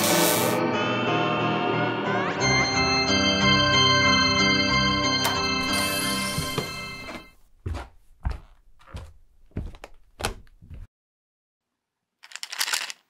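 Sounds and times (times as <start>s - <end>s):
footsteps on hard floor: 5.4s - 10.9s.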